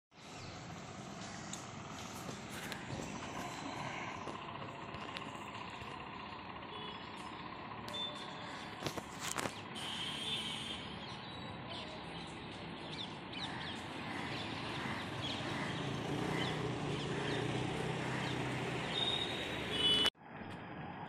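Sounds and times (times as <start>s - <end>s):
street traffic: 0.1s - 21.0s
birds calling: 0.2s - 6.0s, 6.7s - 20.1s
motor scooter engine: 0.5s - 12.0s, 12.9s - 20.1s.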